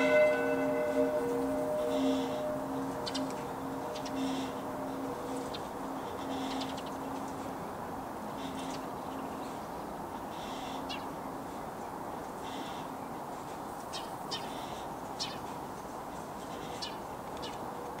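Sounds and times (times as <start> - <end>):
sharp bird calls: 0.0 - 7.5
church bell hum: 0.0 - 8.5
background hiss: 0.0 - 17.9.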